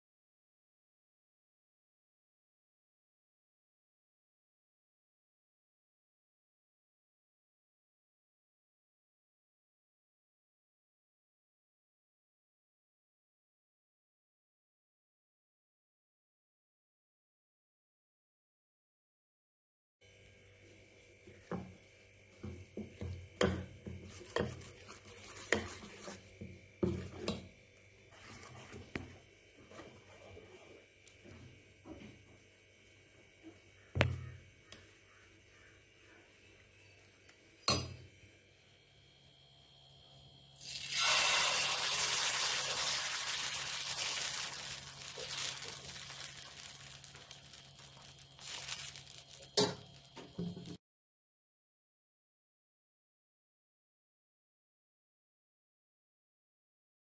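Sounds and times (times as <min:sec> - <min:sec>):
batter sizzling on hot griddle: 0:20.7 - 0:27.4, 0:40.6 - 0:50.8
spoon stirring batter in steel bowl: 0:21.2 - 0:32.1.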